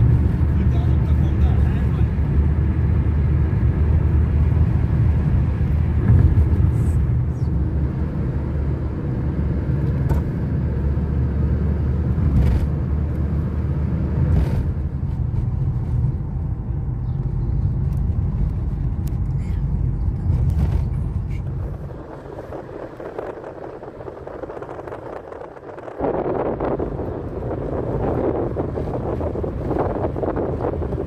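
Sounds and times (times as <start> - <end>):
car engine and tyre rumble: 0.0 - 31.0.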